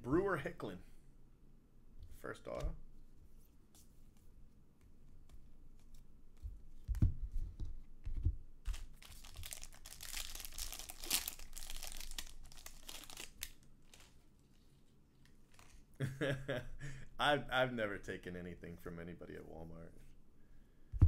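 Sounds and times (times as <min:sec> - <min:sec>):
foil wrapper crinkling and tearing: 0:08.7 - 0:14.6.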